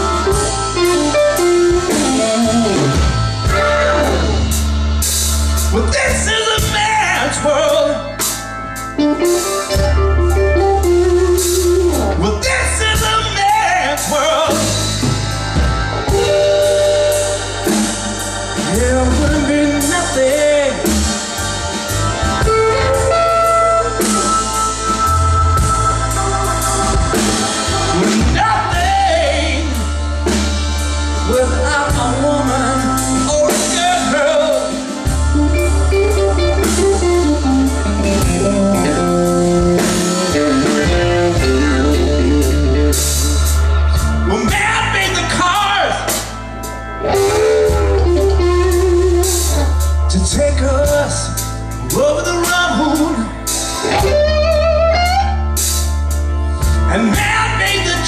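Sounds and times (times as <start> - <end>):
electric guitar: 0.0 - 58.0
man singing: 5.7 - 8.2, 11.4 - 15.0, 18.6 - 21.2, 27.8 - 30.0, 31.2 - 35.2, 44.2 - 46.3, 49.2 - 55.1, 56.8 - 58.0.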